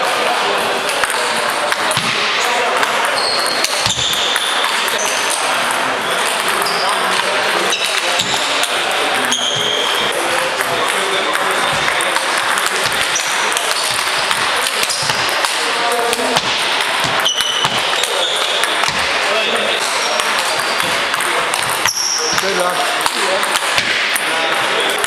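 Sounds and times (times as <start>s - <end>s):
murmur of voices: 0.0s - 25.0s.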